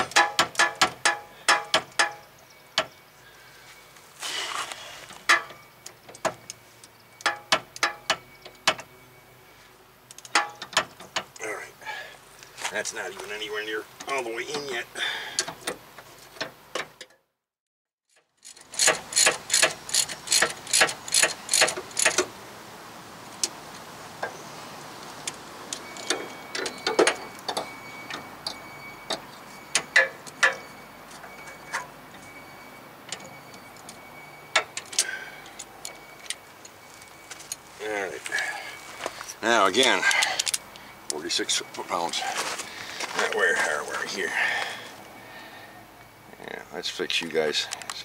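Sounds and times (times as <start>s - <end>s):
hand ratchet clicking: 18.4s - 22.2s.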